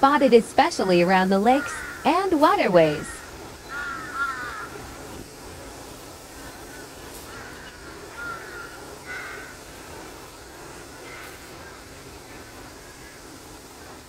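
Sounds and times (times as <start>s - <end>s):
outdoor background noise: 0.0s - 14.0s
birds calling: 0.2s - 14.0s.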